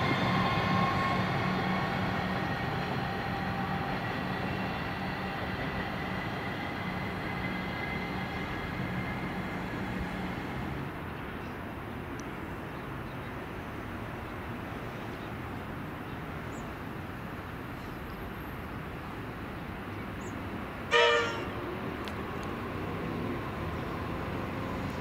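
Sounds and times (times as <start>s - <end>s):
electric train running: 0.0s - 10.9s
train horn toot: 20.9s - 21.7s.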